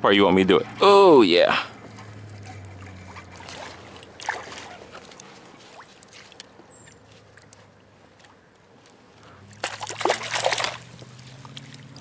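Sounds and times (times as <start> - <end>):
water lapping: 0.0 - 12.0
water splashing: 0.3 - 12.0.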